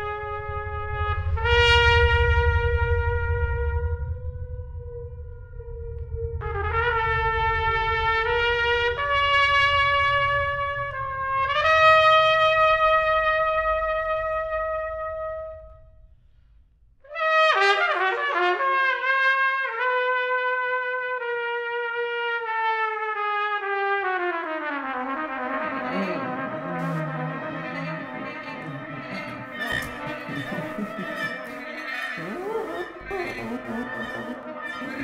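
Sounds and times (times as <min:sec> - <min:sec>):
solo trumpet playing: 0:17.1 - 0:35.0.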